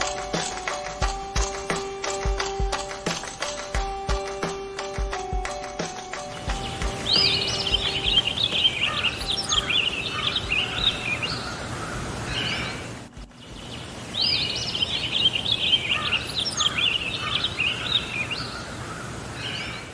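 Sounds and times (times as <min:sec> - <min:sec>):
low outdoor background: 0:00.0 - 0:19.9
songbird warbling: 0:06.2 - 0:19.9.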